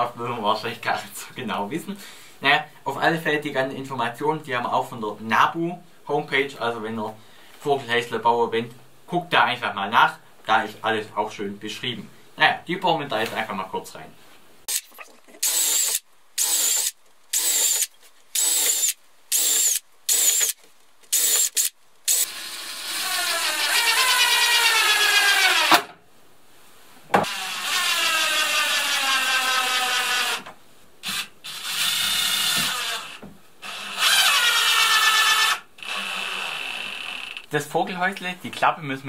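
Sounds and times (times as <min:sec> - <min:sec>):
cordless drill drilling wood: 0:14.7 - 0:25.9, 0:27.2 - 0:37.4
drill driving screws: 0:14.7 - 0:25.9, 0:27.2 - 0:37.4.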